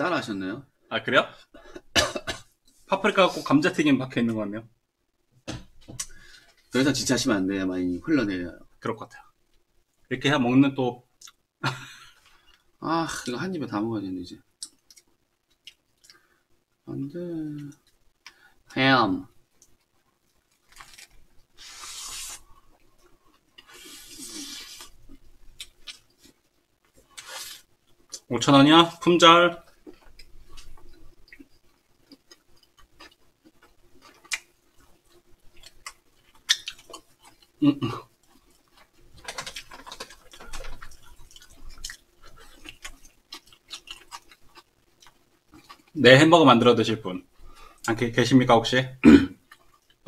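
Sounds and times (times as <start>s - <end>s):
person chewing: 19.6s - 28.3s, 29.7s - 46.0s.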